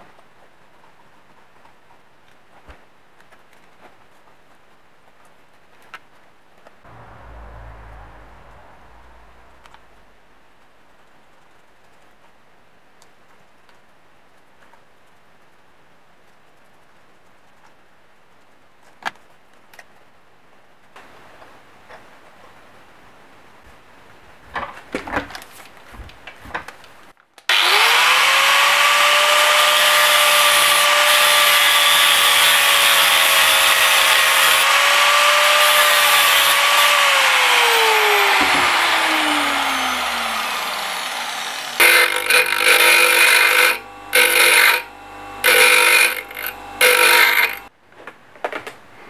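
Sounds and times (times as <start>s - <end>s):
angle grinder cutting metal: 27.5s - 47.7s
bench grinder grinding metal: 27.5s - 47.7s.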